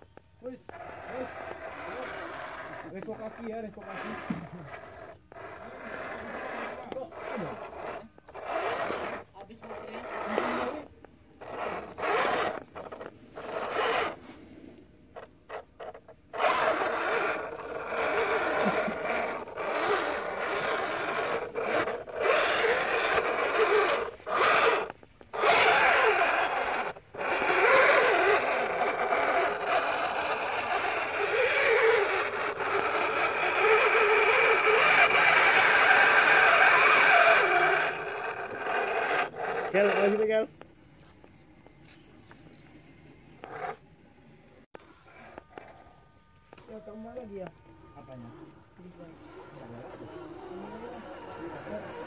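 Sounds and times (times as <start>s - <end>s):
toy car motor whining: 0.0s - 41.3s, 43.4s - 43.8s, 44.7s - 52.0s
tyres scraping on dirt: 0.4s - 14.3s, 15.2s - 40.5s.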